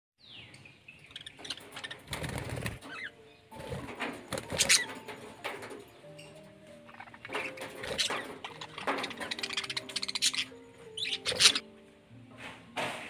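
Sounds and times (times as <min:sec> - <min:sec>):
bird chirps: 0:00.2 - 0:11.8
budgerigar wings fluttering: 0:01.3 - 0:05.9, 0:07.3 - 0:10.4.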